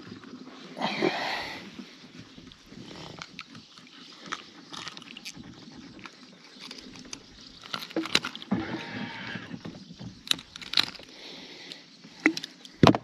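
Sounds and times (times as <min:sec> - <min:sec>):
pliers and hooks clicking: 0:06.6 - 0:08.5, 0:10.2 - 0:11.1.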